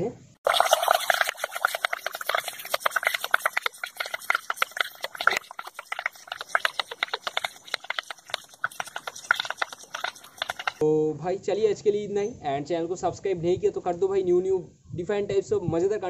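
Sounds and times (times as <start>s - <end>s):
air bubbling through a straw underwater: 0.4s - 10.8s.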